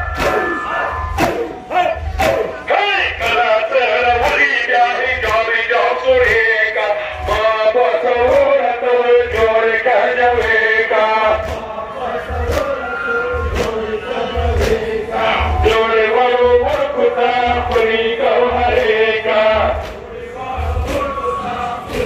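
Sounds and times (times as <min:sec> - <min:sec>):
chest beating slaps: 0:00.0 - 0:02.6
man chanting over loudspeakers: 0:00.0 - 0:22.0.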